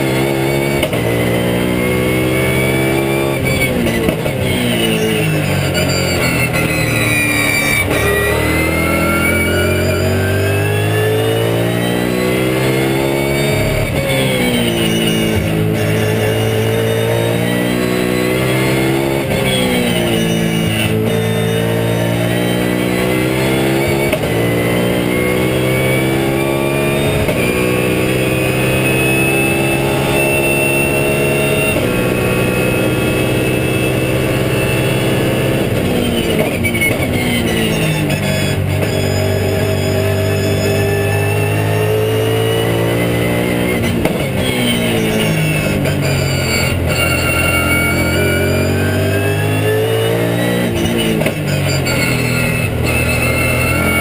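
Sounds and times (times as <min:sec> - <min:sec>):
race car engine shifting gears: 0:00.0 - 0:54.0.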